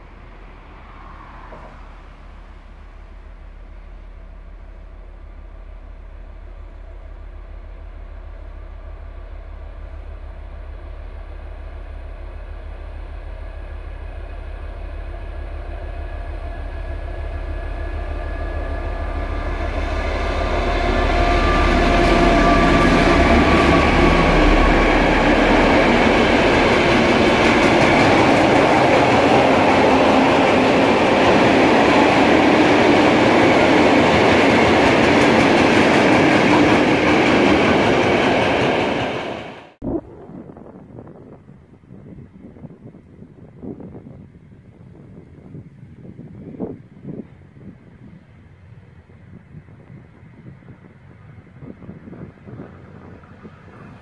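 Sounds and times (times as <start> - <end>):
locomotive engine drone: 0.0 - 40.7
freight wagons wheel and rail noise: 0.0 - 54.0.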